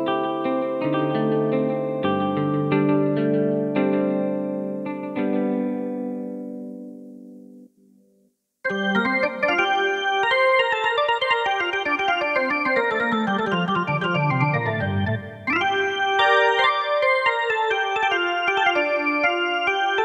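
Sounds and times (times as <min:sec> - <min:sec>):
keyboard fast flurry of notes: 0:08.7 - 0:19.8.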